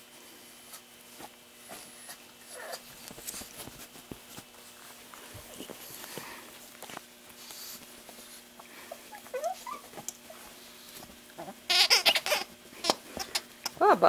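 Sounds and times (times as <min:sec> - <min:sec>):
squeaky toy squeaking: 0:11.7 - 0:13.4.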